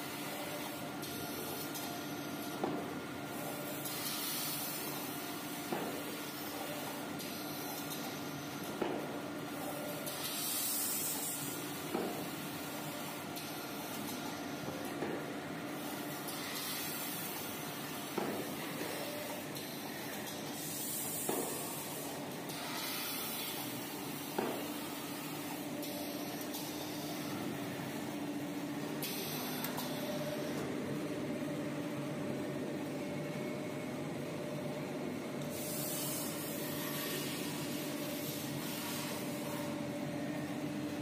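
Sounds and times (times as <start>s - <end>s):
machine hiss: 3.4s - 5.1s, 10.0s - 12.4s, 15.8s - 27.4s, 29.0s - 30.5s, 35.5s - 39.7s.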